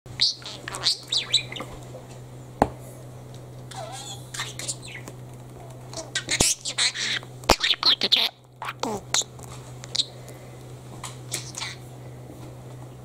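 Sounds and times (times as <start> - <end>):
steady low hum: 0.1 - 13.0
budgerigar chirping and warbling: 0.2 - 1.7, 3.7 - 5.1, 6.0 - 9.3, 11.4 - 11.8.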